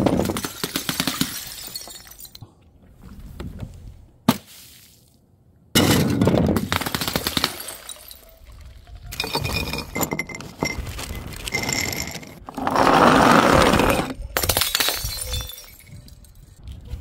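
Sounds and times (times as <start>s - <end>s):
glass bottle smashing: 1.2s - 2.4s, 14.4s - 16.4s
glass shards tinkling: 9.1s - 12.4s, 14.4s - 16.6s
sharp glass clink: 14.4s - 16.5s.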